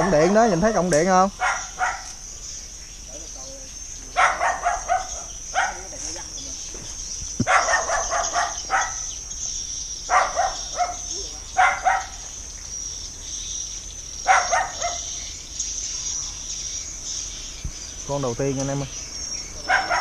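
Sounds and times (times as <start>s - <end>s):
insects droning: 0.0s - 20.0s
dog barking: 1.4s - 2.2s, 4.1s - 5.9s, 7.4s - 9.1s, 10.1s - 12.2s, 14.2s - 15.2s, 19.6s - 20.0s.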